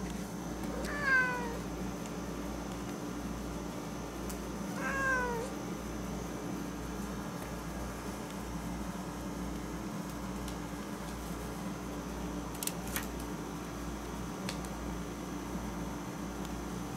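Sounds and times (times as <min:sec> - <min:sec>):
air conditioner humming: 0:00.0 - 0:16.9
cat meowing: 0:00.7 - 0:01.6, 0:04.8 - 0:05.5.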